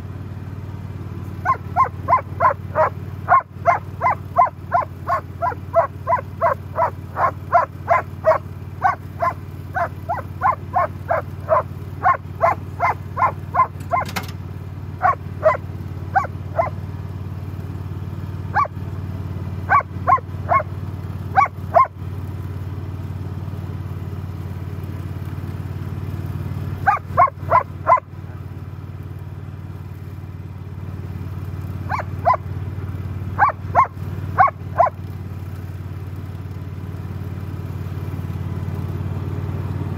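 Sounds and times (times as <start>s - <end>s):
mower engine running: 0.0s - 39.9s
dog barking: 1.4s - 14.3s, 15.0s - 16.8s, 18.5s - 18.7s, 19.7s - 20.7s, 21.3s - 21.9s, 26.8s - 28.1s, 31.9s - 32.5s, 33.4s - 35.0s.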